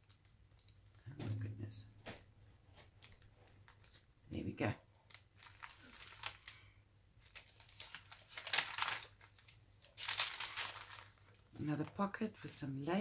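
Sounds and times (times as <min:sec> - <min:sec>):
paper pages rustling: 0:02.9 - 0:04.1, 0:05.1 - 0:12.1.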